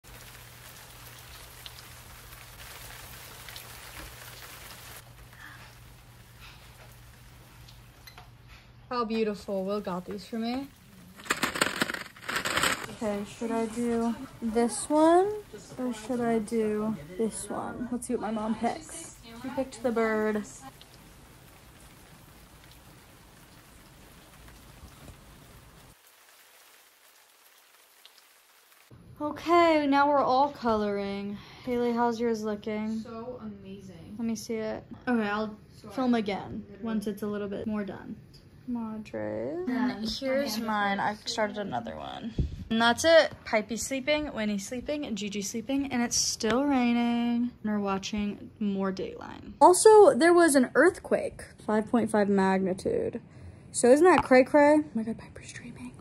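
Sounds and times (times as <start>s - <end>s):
small water drips: 0.0s - 8.4s, 19.1s - 28.9s
steady rain hiss: 0.0s - 29.1s.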